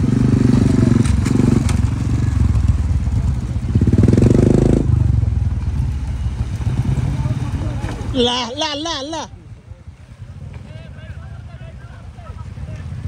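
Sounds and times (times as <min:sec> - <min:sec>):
motorcycle engine revving: 0:00.0 - 0:08.4.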